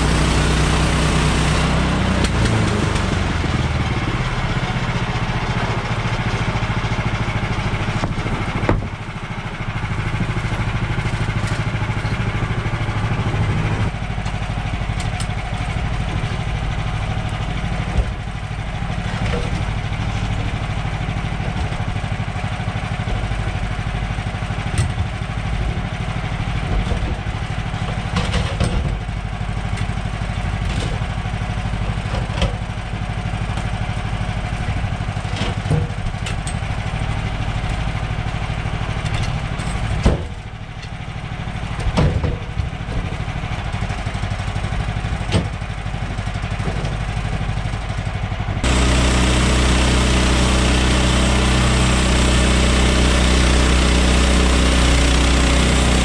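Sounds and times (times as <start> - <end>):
petrol engine idling: 2.1 - 41.8, 42.4 - 56.0
wooden knocks and clunks of log: 8.0 - 9.0, 40.0 - 40.4, 41.8 - 43.2, 45.3 - 45.6.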